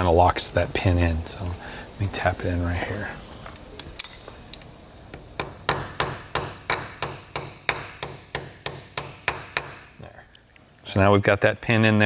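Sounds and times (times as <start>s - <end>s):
hammer tapping metal pin: 3.6s - 9.9s.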